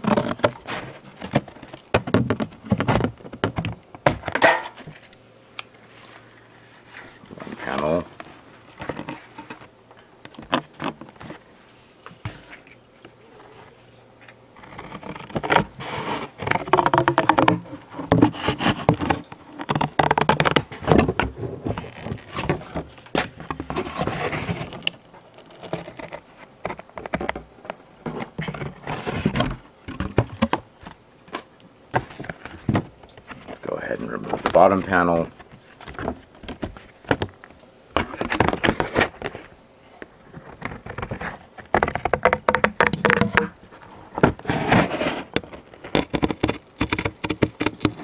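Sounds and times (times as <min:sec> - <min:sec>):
cardboard tearing: 0:00.0 - 0:03.2, 0:14.6 - 0:27.4, 0:28.1 - 0:30.5, 0:40.2 - 0:43.6, 0:44.4 - 0:48.0
cardboard scraping and rustling: 0:00.0 - 0:05.2, 0:05.8 - 0:48.0.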